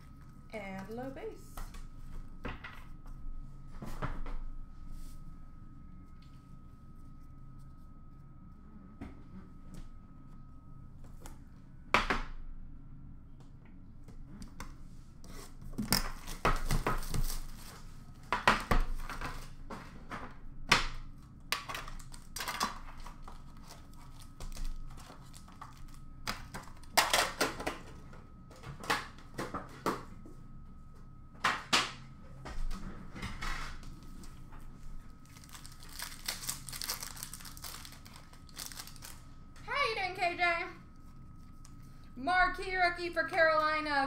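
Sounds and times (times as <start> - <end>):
wrapper crinkling and tearing: 21.7 - 27.3, 35.2 - 39.3.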